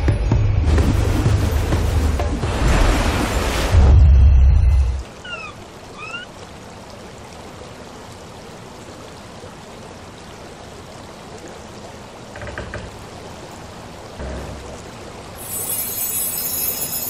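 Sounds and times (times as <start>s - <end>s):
rushing water: 0.0s - 17.0s
gliding tones: 14.2s - 17.0s.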